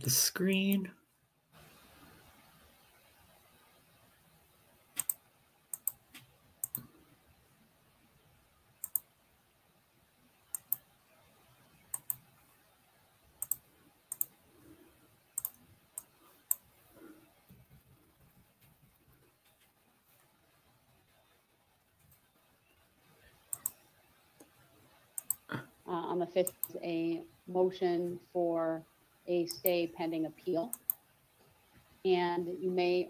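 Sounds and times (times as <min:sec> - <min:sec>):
computer mouse clicking: 0:05.0 - 0:07.0, 0:08.8 - 0:09.1, 0:10.5 - 0:10.9, 0:11.8 - 0:12.3, 0:13.4 - 0:14.4, 0:15.4 - 0:17.9, 0:23.4 - 0:25.5, 0:26.4 - 0:26.8, 0:29.5 - 0:29.8, 0:30.7 - 0:31.0.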